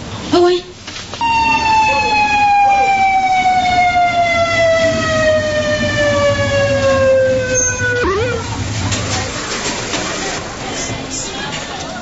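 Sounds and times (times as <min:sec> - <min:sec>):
siren falling tone: 0:01.2 - 0:08.6
siren yelp: 0:01.2 - 0:08.6.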